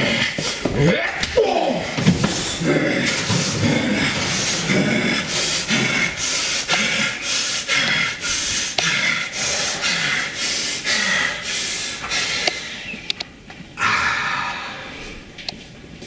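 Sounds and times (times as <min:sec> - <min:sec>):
man panting heavily: 0:02.2 - 0:12.9.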